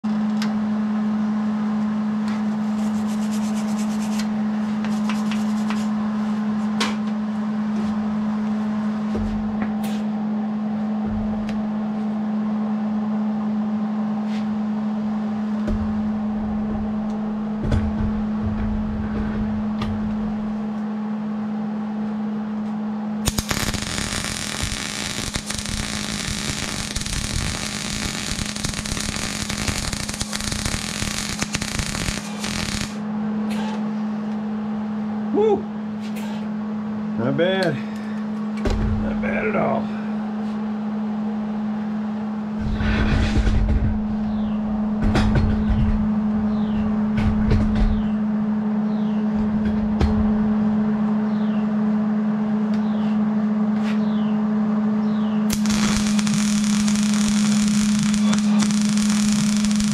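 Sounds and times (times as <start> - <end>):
steady low hum: 0.0 - 59.9
welding arc crackling sizzle: 2.7 - 4.3, 4.9 - 6.0, 23.2 - 33.0, 55.5 - 59.9.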